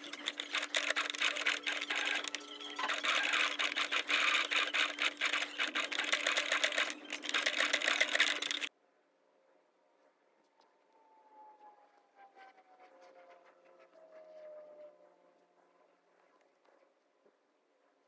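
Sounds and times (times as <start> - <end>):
sewing machine stitching: 0.0 - 8.7.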